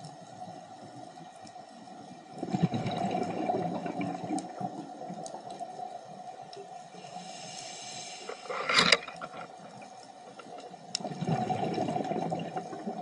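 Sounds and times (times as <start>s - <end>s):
underwater breath bubbling: 7.0s - 9.0s, 11.0s - 13.0s.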